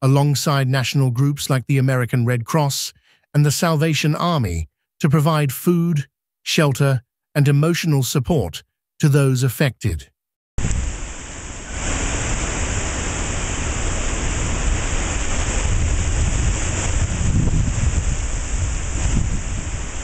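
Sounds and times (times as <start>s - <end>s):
low rumble on microphone: 10.6s - 20.0s
rain: 10.6s - 20.0s
wind: 10.6s - 20.0s.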